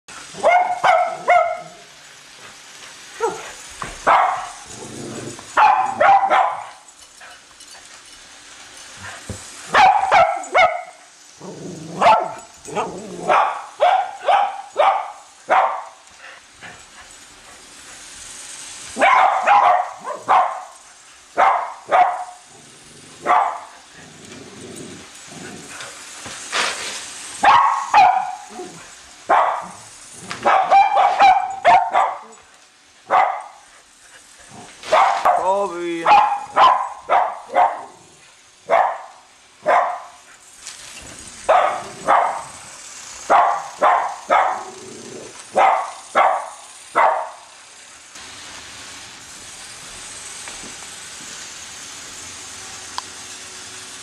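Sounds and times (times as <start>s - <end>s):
dogs barking: 0.4s - 1.9s, 3.2s - 3.4s, 4.0s - 4.8s, 5.5s - 6.8s, 9.7s - 11.0s, 11.9s - 16.0s, 19.0s - 20.8s, 21.4s - 22.5s, 23.2s - 23.8s, 27.4s - 28.6s, 29.3s - 29.8s, 30.4s - 32.4s, 33.1s - 33.7s, 34.9s - 38.1s, 38.7s - 40.2s, 41.5s - 42.6s, 43.3s - 44.8s, 45.5s - 47.4s.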